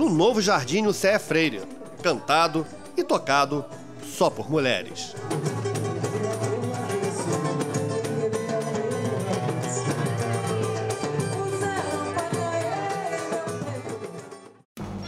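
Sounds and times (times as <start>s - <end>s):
pandeiro: 0.0s - 14.6s
woman singing: 1.6s - 14.4s
hand drum beat: 5.1s - 14.4s.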